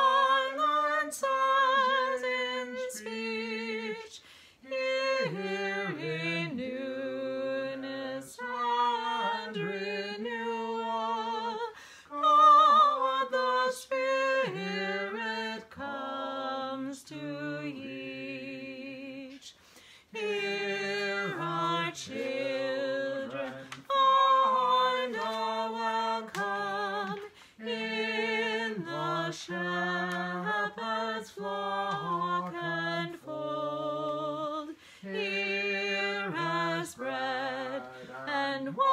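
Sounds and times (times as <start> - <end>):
man singing a hymn unaccompanied: 20.2 - 38.9.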